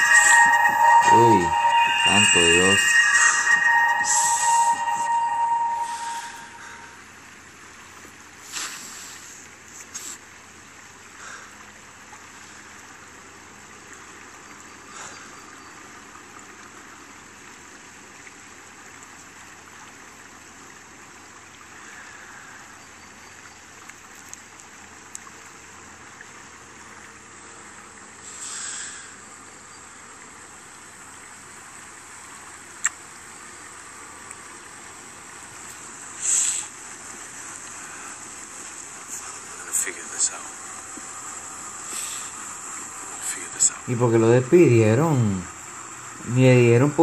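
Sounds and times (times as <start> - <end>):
stream flowing: 0.0 - 47.0.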